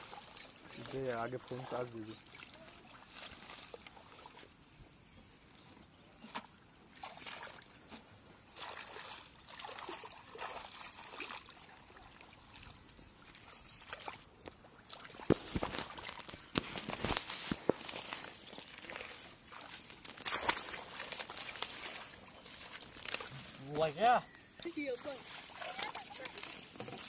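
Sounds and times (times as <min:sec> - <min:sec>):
hands splashing in muddy water: 0:06.2 - 0:07.8, 0:08.5 - 0:24.0, 0:24.6 - 0:27.0.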